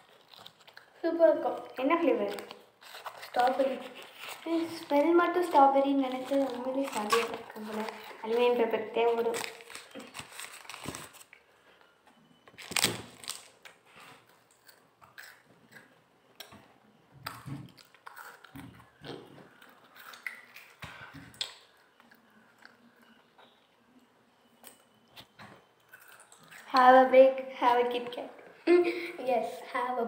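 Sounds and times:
wafer crunching and chewing: 0:00.0 - 0:08.4, 0:09.0 - 0:11.5, 0:12.4 - 0:16.6, 0:17.2 - 0:23.6, 0:24.6 - 0:26.7.

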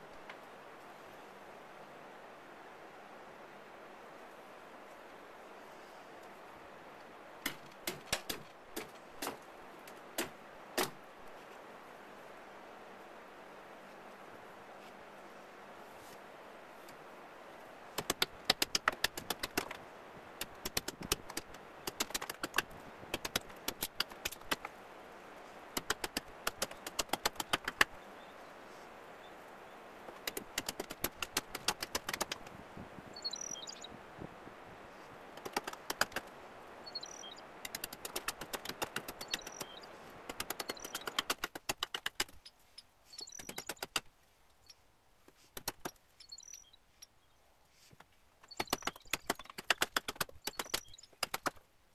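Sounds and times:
hatchet chopping wood: 0:07.4 - 0:09.4, 0:10.2 - 0:11.0, 0:18.0 - 0:19.8, 0:20.4 - 0:24.7, 0:25.8 - 0:28.0, 0:37.7 - 0:39.4, 0:40.3 - 0:42.4.

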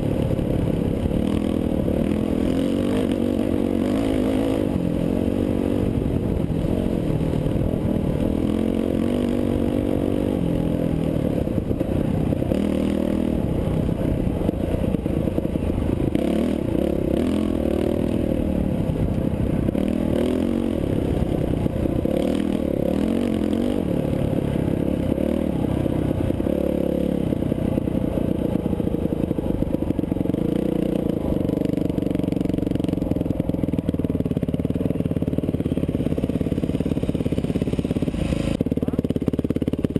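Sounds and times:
dirt bike engine revving: 0:00.0 - 0:33.5, 0:34.4 - 0:39.0.

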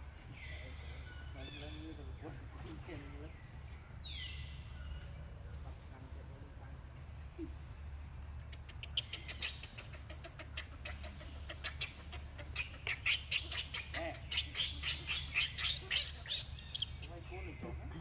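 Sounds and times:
baby monkey screaming: 0:08.9 - 0:17.1.

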